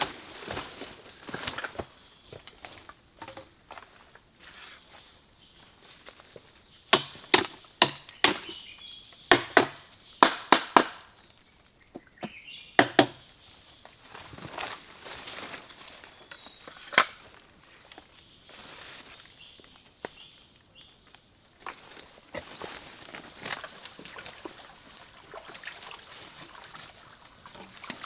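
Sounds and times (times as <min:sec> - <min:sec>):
high insect drone: 0:00.0 - 0:28.0
knife chopping plant stalk: 0:07.0 - 0:08.5.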